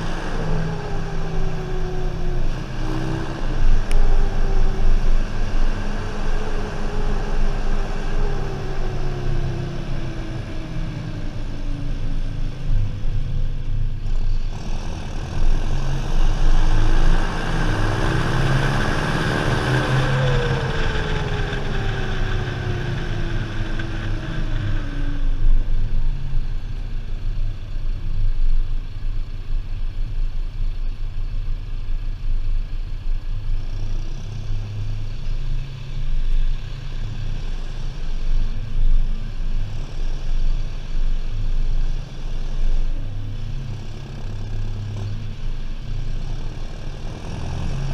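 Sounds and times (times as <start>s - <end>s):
tractor diesel engine running: 0.0s - 28.0s
turbo whine: 0.0s - 47.9s.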